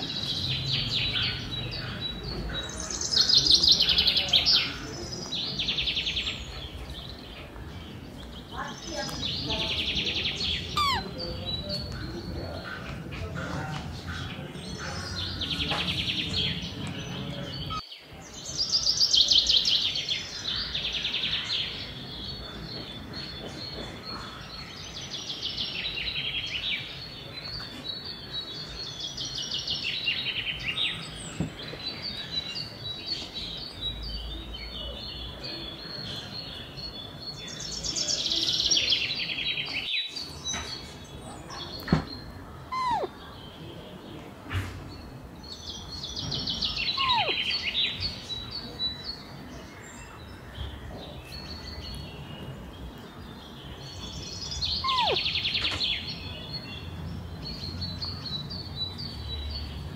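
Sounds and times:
parrots chirping: 9.4 - 12.0, 42.6 - 43.4, 46.5 - 48.3, 54.5 - 55.8.

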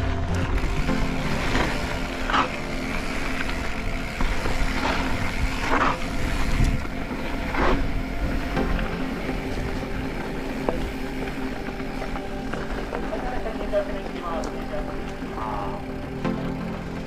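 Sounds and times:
bike tyre and frame noise: 0.0 - 17.0
wind rumble on microphone: 3.4 - 12.4.

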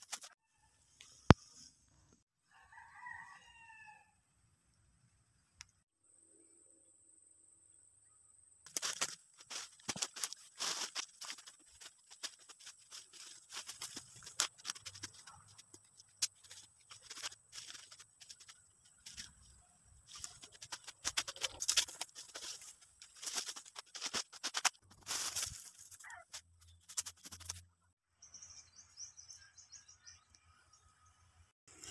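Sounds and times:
undergrowth crackling and snapping: 8.7 - 19.4, 20.1 - 26.4
footsteps in dry leaves: 8.7 - 27.6.

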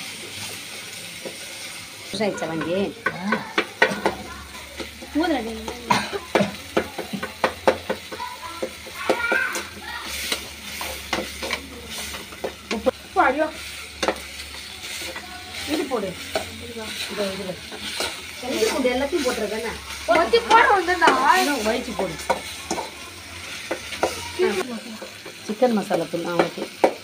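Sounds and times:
food sizzling in a pan: 0.0 - 27.0
metal spoon scraping a pan: 8.6 - 13.0, 13.6 - 25.6.

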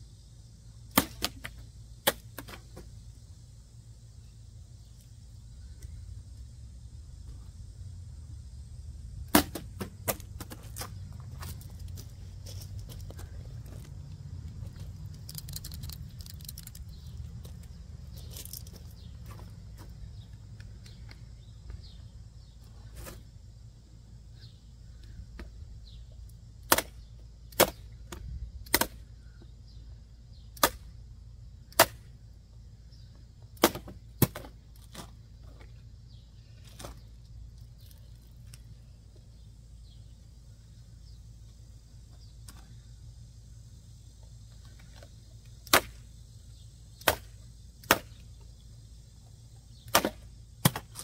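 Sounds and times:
knife striking target cracks: 0.9 - 2.6, 9.3 - 10.6, 26.7 - 27.8, 28.7 - 29.0, 30.6 - 30.9, 31.7 - 32.1, 33.6 - 34.5, 45.6 - 46.0, 47.0 - 48.2, 49.9 - 51.0.

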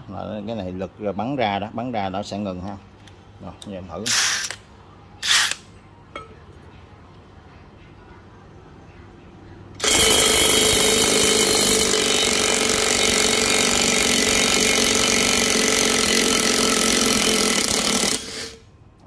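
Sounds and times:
impact wrench hammering: 9.8 - 18.3.

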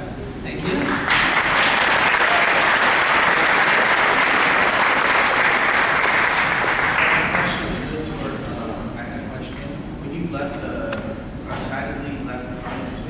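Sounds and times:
crowd applauding: 0.6 - 7.8.

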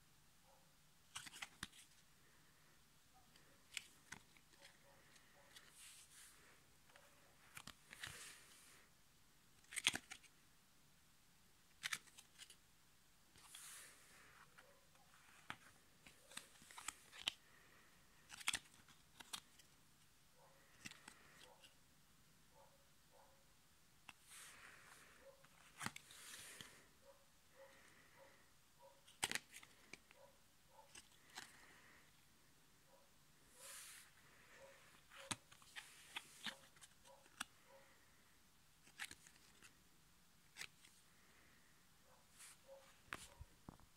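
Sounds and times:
stiff card clicking and snapping: 9.6 - 10.3, 18.3 - 19.5, 29.1 - 30.0.

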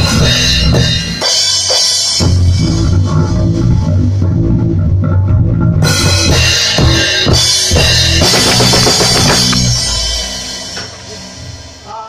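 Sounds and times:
drum kit kick and tom hits: 0.0 - 11.6
low sustained bass notes: 2.2 - 11.7
cymbals crashing: 6.4 - 12.0.

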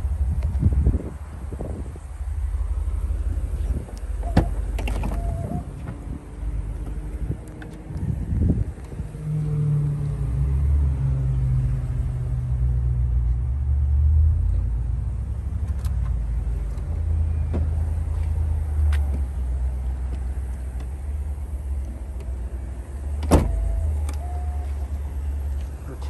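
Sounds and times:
car trunk lid thump: 23.2 - 23.6.

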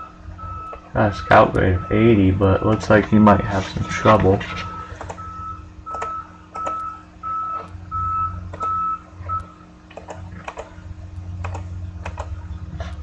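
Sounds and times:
sharp clicks: 5.0 - 5.2, 5.9 - 6.9, 8.5 - 8.8, 9.4 - 10.7, 11.4 - 12.4.

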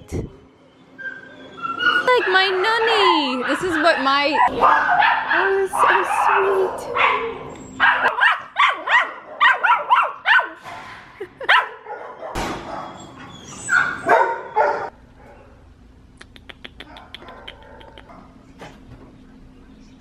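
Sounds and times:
small dog yipping: 1.0 - 10.6, 12.2 - 14.9.

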